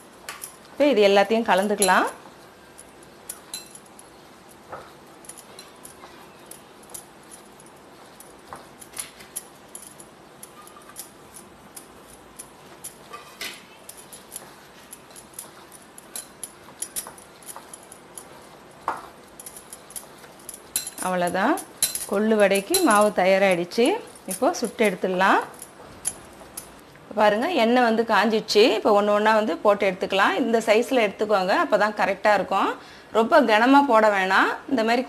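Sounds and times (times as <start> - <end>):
grainy batter rustling: 0.0 - 26.9.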